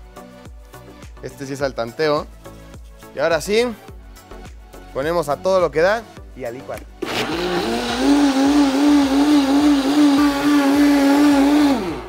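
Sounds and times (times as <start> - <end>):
blender running: 7.0 - 12.0.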